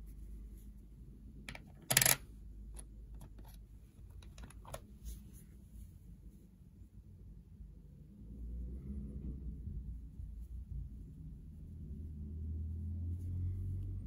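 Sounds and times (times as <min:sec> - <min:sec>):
coins clattering: 0:01.5 - 0:02.2
coins clicking: 0:01.5 - 0:02.2.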